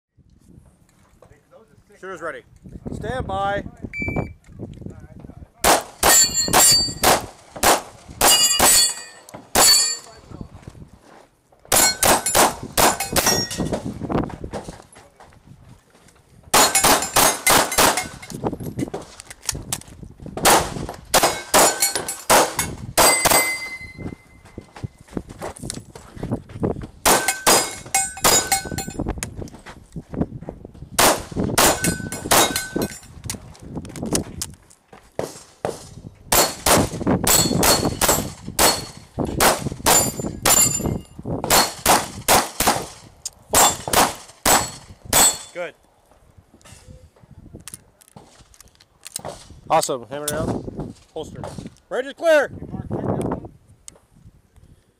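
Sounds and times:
airsoft pistol firing: 5.6 - 8.8, 11.7 - 13.4, 16.6 - 18.2, 31.0 - 32.7, 36.3 - 40.6, 41.5 - 43.0
pellets hitting steel targets: 5.7 - 10.2, 11.7 - 13.8, 16.5 - 18.3, 20.4 - 24.1, 27.0 - 29.0, 31.0 - 33.1, 36.3 - 45.6.

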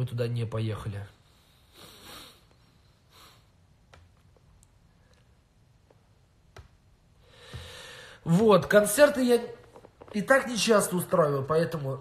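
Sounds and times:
man breathing out through nose: 7.2 - 8.2.

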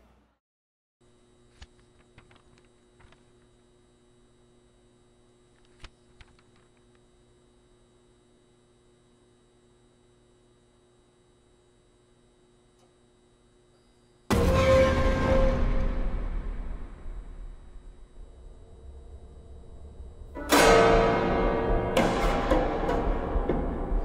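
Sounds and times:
low electrical hum: 1.0 - 24.0.

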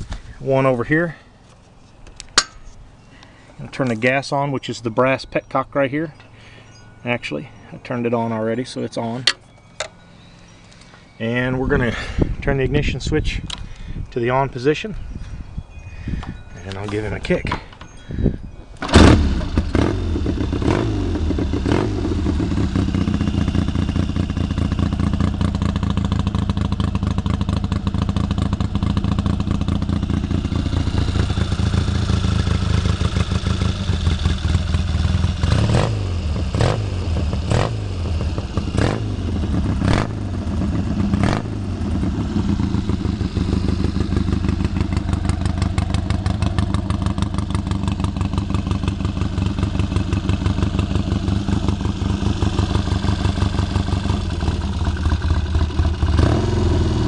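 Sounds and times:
motorcycle engine revving at idle: 18.9 - 57.0.

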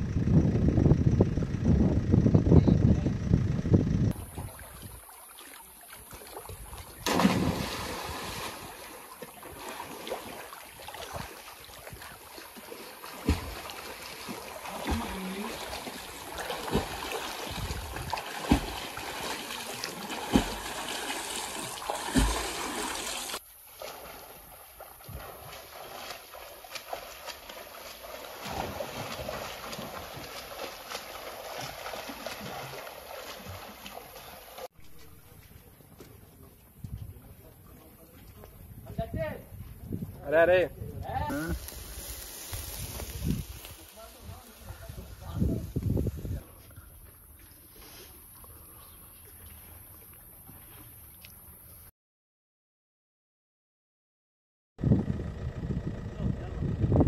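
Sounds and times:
loud splash into water: 4.2 - 12.2, 12.8 - 24.2, 28.0 - 34.2
swimming stroke splashes: 4.2 - 34.7, 41.3 - 44.8.

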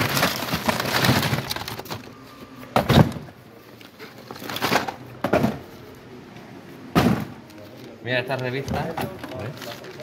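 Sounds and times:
plastic cases clattering in box: 0.0 - 2.2.

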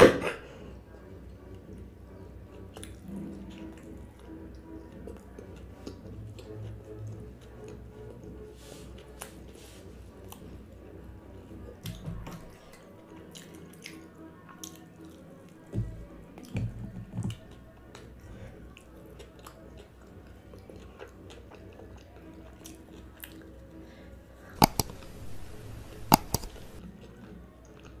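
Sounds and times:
close-miked chewing: 2.5 - 10.9, 11.7 - 15.7, 17.3 - 28.0
mouse clicks: 24.6 - 26.8.

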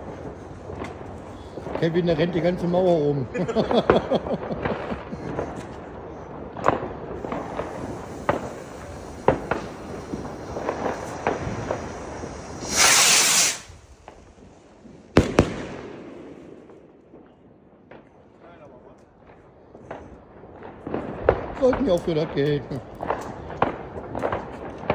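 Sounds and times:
fireworks popping and cracking: 0.0 - 24.9
rocket launch hiss: 6.8 - 16.5
shell bursting bangs: 15.0 - 18.1.

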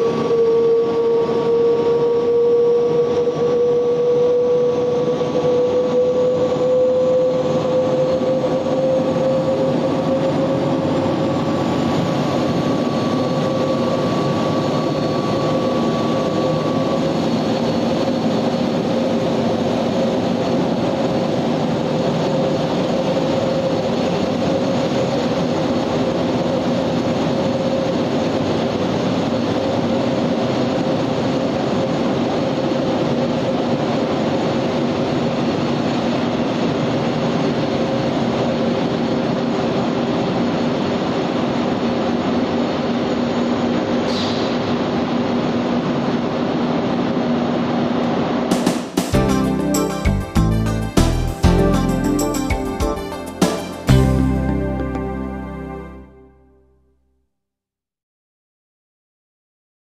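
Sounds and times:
turbine train whine: 0.0 - 56.7
higher second tone: 49.2 - 57.0.

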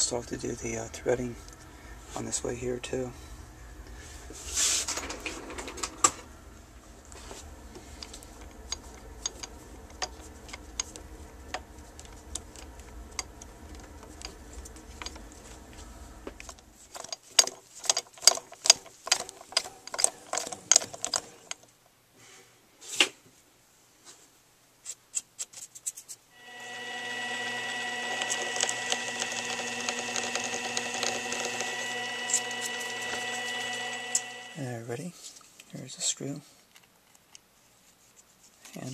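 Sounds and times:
sharp metal clicks and knocks: 16.4 - 21.7
lathe motor whine: 26.4 - 34.6.

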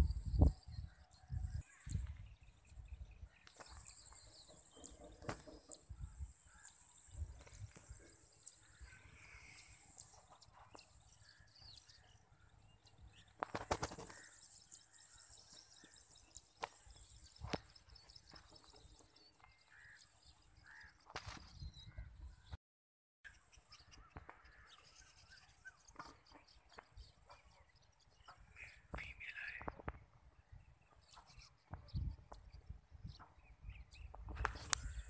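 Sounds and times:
wind rumble on microphone: 0.0 - 4.0, 4.8 - 6.4, 21.4 - 22.6, 29.6 - 35.0
faint bird chirps: 0.0 - 22.5, 23.3 - 35.0
single clicks: 34.4 - 34.9.

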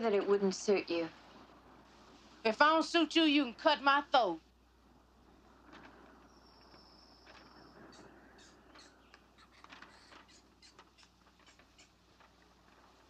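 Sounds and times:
bird chirps: 6.2 - 12.0.

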